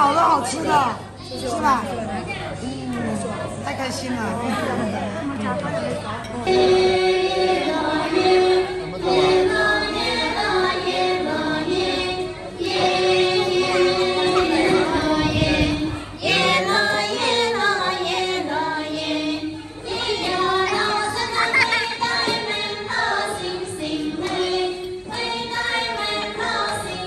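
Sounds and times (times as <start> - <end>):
women singing folk song: 6.4 - 27.0.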